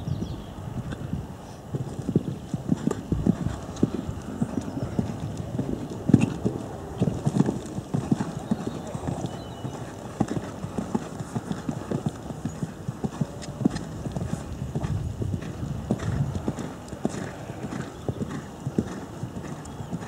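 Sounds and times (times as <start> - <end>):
horse hoofbeats on sand: 1.7 - 20.0.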